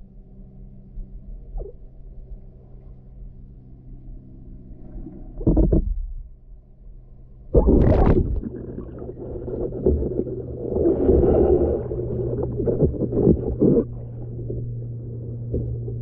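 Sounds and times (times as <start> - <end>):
steady low hum: 0.0 - 16.0
water gurgling: 7.6 - 16.0
water sloshing and splashing: 7.6 - 16.0.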